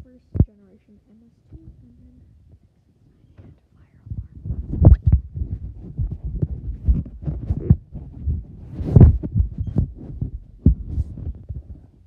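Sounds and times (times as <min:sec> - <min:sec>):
microphone handling thumps: 0:00.3 - 0:00.6, 0:03.3 - 0:12.0
footsteps: 0:04.5 - 0:11.7.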